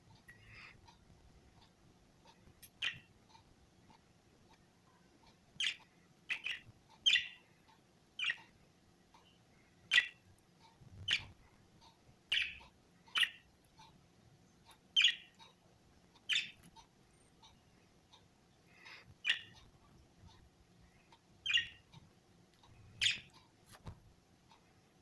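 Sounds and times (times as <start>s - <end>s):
budgerigars chirping: 2.8s - 3.4s, 5.6s - 7.5s, 8.2s - 8.5s, 9.9s - 10.2s, 11.0s - 11.4s, 12.3s - 13.5s, 14.6s - 15.6s, 16.2s - 18.2s, 18.8s - 19.7s, 21.1s - 22.0s, 22.8s - 23.4s.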